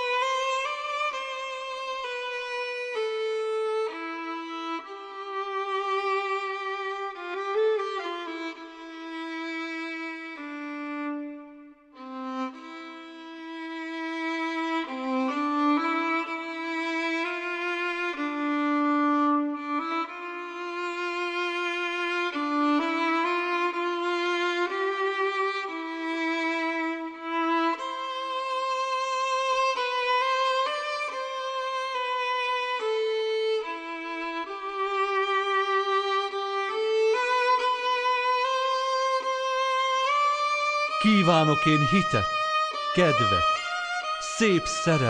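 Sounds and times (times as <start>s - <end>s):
violin melody with vibrato: 0.0s - 44.2s.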